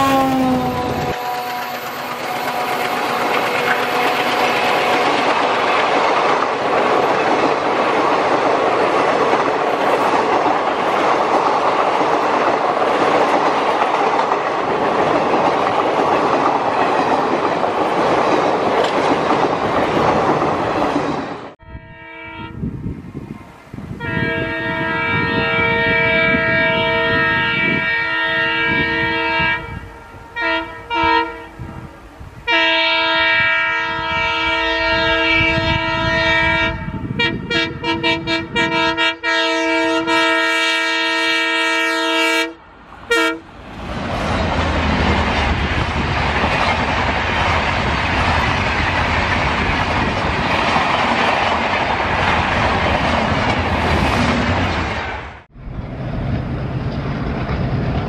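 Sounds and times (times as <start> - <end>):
locomotive horn blasts: 0.0 - 5.5, 21.6 - 22.8, 24.0 - 43.5
train engine and running noise: 0.0 - 58.0.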